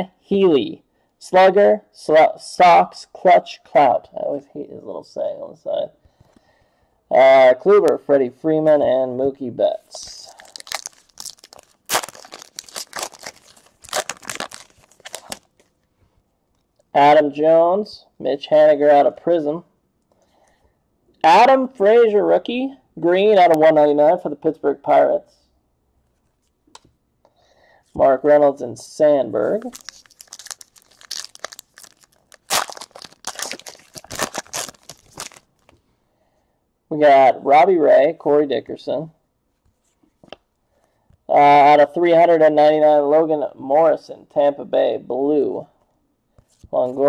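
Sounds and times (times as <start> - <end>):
foil wrapper tearing and crinkling: 10.3 - 15.8, 29.5 - 35.7.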